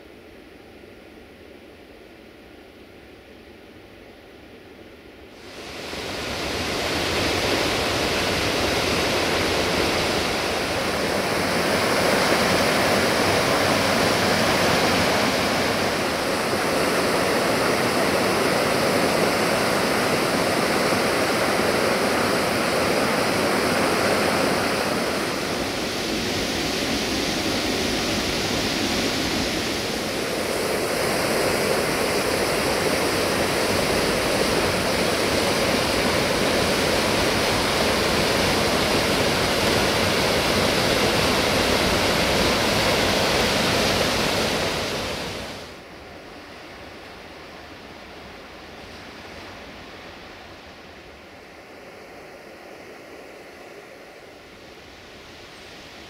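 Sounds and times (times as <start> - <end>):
waterfall rushing: 5.4 - 45.8.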